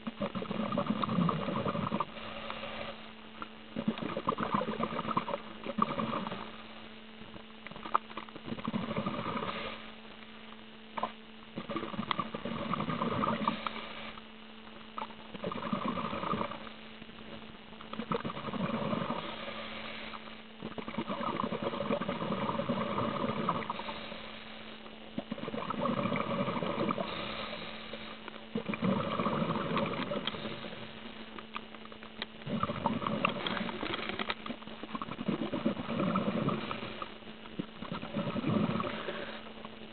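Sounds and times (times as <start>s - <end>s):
steady low hum: 0.0s - 39.9s
underwater bubbles bursting: 20.6s - 23.8s, 25.2s - 27.2s, 28.6s - 30.7s, 32.4s - 33.7s, 34.5s - 39.3s.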